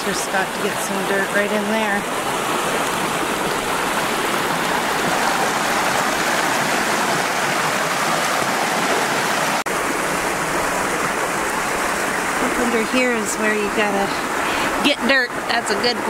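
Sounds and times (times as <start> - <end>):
creek rushing over stones: 0.0 - 16.0.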